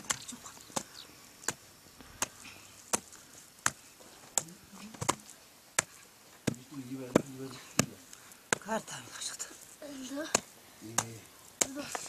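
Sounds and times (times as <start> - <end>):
hand tool striking hard earth: 0.8 - 3.8, 5.8 - 8.8, 10.2 - 12.0.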